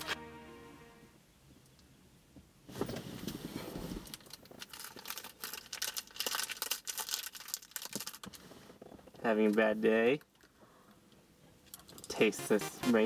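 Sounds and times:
music track: 0.0s - 1.2s, 12.1s - 13.0s
plastic candy wrapper crinkling: 4.1s - 8.4s.

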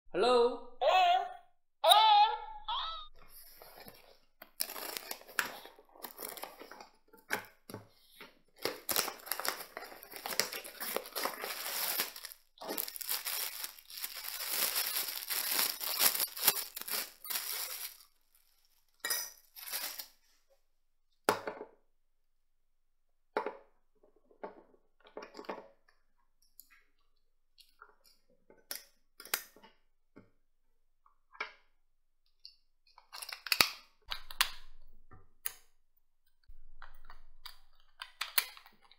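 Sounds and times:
plastic bag crinkling and tearing: 3.4s - 6.9s, 8.6s - 18.8s, 19.5s - 20.2s.

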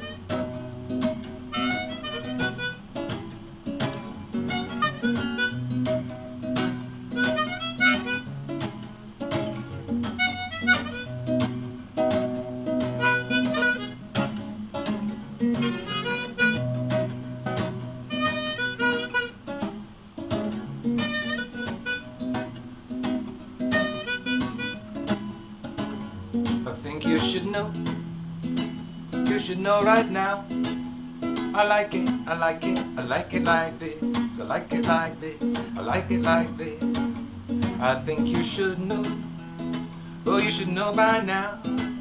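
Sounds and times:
harmonica solo: 0.0s - 0.6s, 1.5s - 2.9s, 4.5s - 5.8s, 7.1s - 8.3s, 10.2s - 11.4s, 12.9s - 14.1s, 15.5s - 17.1s, 18.0s - 19.4s, 21.0s - 22.4s, 23.7s - 24.9s
strummed acoustic guitar: 0.0s - 42.0s.

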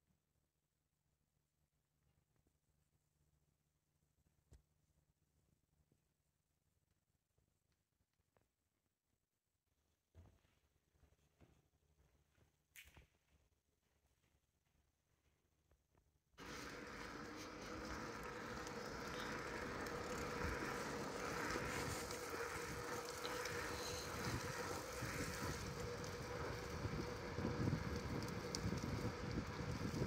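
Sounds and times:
faint steady hum: 16.4s - 30.0s
wind: 16.4s - 30.0s.

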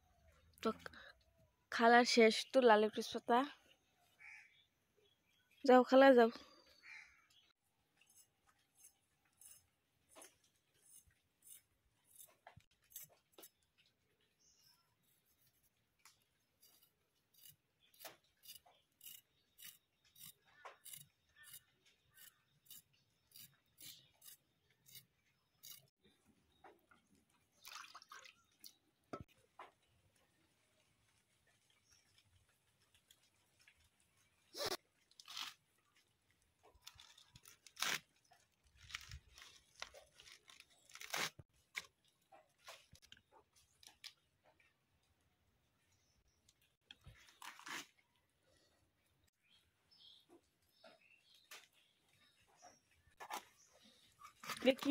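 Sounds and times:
potato scraping against blade: 8.0s - 13.6s, 16.6s - 25.9s.

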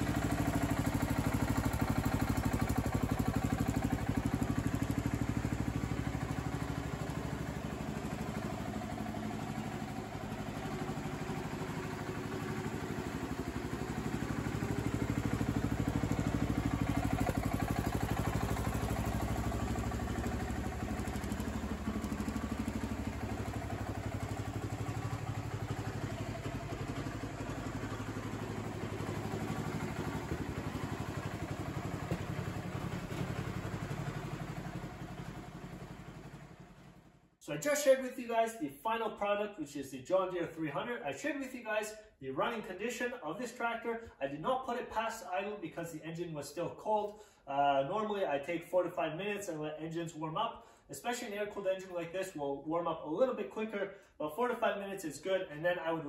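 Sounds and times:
garden tractor engine idling: 0.0s - 37.2s.

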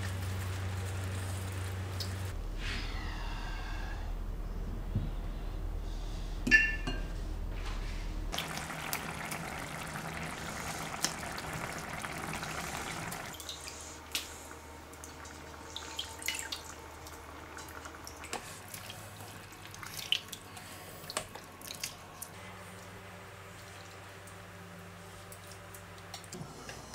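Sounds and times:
curry bubbling in a pan: 8.4s - 13.4s.

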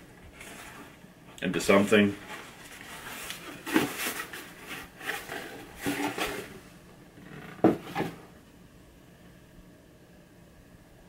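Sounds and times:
cardboard box rubbing and scraping: 2.2s - 6.5s.

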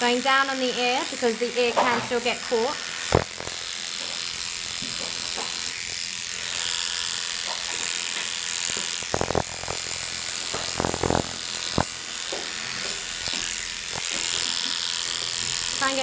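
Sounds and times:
electric clippers buzzing: 0.0s - 16.0s.

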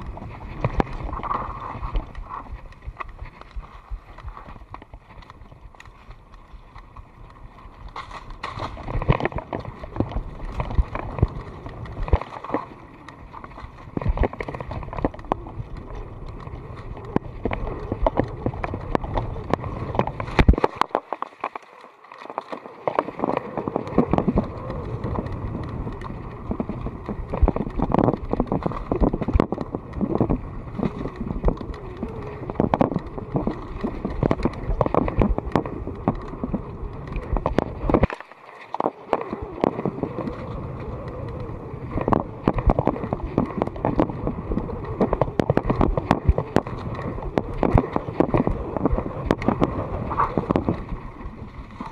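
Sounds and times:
bike rattling over bumps: 4.2s - 13.1s, 23.0s - 38.1s.

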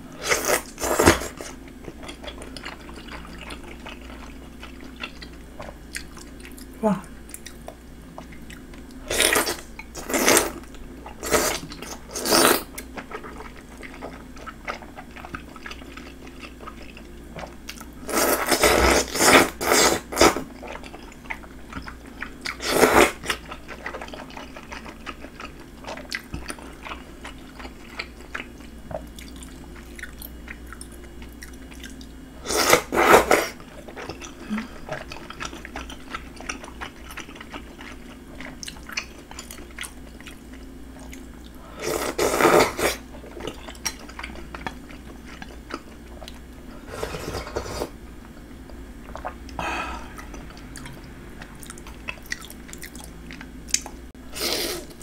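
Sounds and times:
soft chewing: 0.4s - 12.0s, 12.7s - 18.0s, 23.2s - 32.2s, 33.5s - 55.0s.

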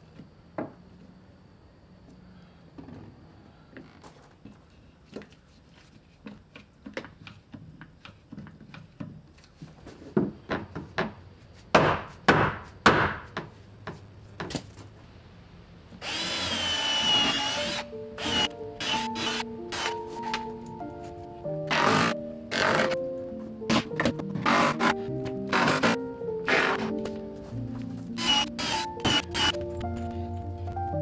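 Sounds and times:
cordless drill running: 16.0s - 19.9s, 28.2s - 29.6s
music: 16.8s - 31.0s.

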